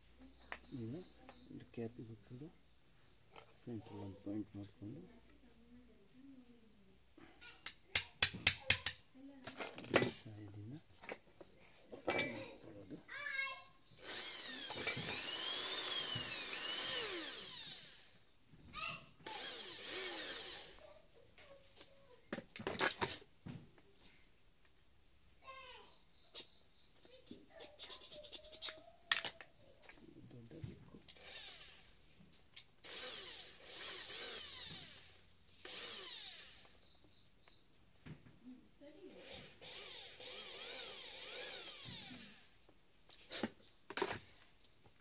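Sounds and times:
electric drill boring: 0:14.0 - 0:18.2, 0:19.2 - 0:20.8, 0:31.1 - 0:32.0, 0:32.8 - 0:36.8, 0:39.2 - 0:42.6.

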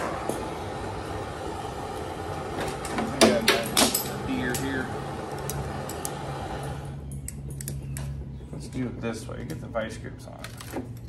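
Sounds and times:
propane torch hissing: 0:00.0 - 0:07.1.

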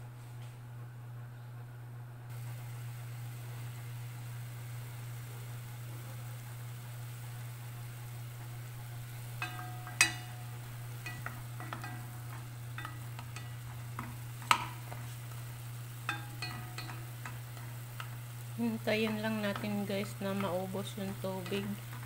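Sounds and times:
steady low hum: 0:00.0 - 0:22.0
water simmering: 0:02.4 - 0:22.0
spatula clinking against pot: 0:09.4 - 0:15.4, 0:16.0 - 0:18.3.

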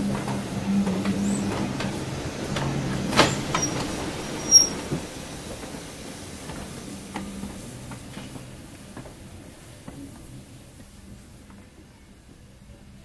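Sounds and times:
steam locomotive low hum: 0:00.0 - 0:13.0
brief high squeak: 0:03.2 - 0:04.8.

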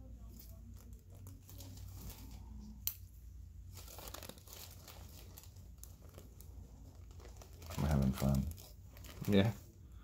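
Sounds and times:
low room hum: 0:00.0 - 0:10.0
gloves and paper crinkling: 0:00.2 - 0:02.6, 0:03.6 - 0:09.7.

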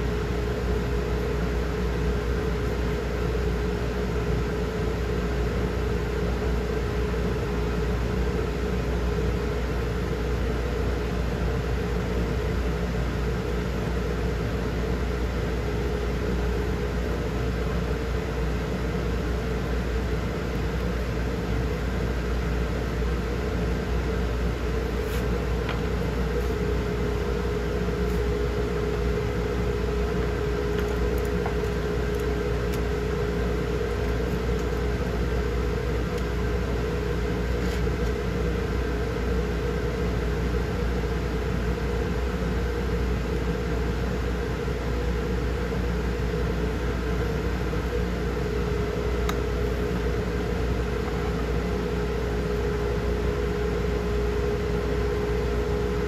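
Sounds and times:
motor humming: 0:24.5 - 0:38.7.

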